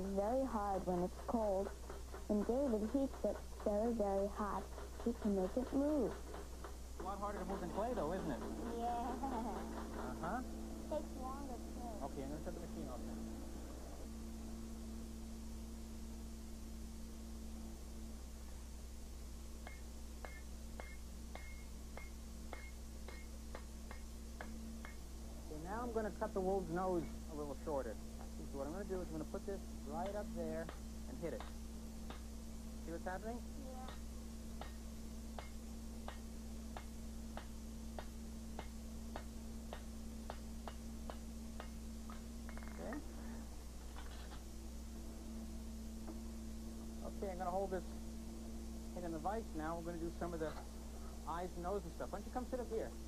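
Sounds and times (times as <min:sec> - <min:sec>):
low hum: 0:00.0 - 0:53.0
hammer striking hot iron: 0:00.8 - 0:10.6, 0:19.6 - 0:25.2, 0:29.8 - 0:32.5, 0:33.8 - 0:43.1
hammer striking anvil: 0:19.6 - 0:25.0, 0:34.6 - 0:36.2.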